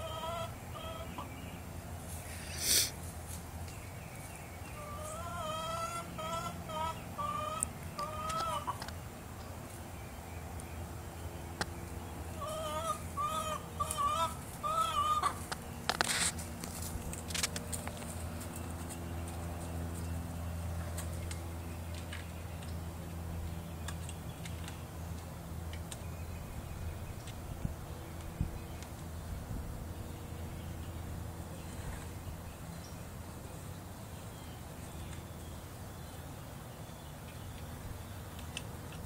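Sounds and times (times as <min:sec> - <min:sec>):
hen clucking: 0:00.0 - 0:01.4, 0:04.7 - 0:08.9, 0:12.3 - 0:16.3
sharp clicks and scratchy noises: 0:15.5 - 0:19.4.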